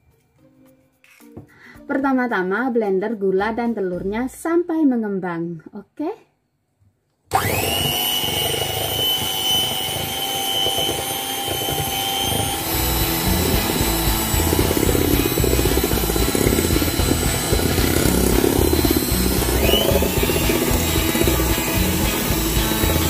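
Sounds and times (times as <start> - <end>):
electric hand mixer whirring: 7.3 - 23.0.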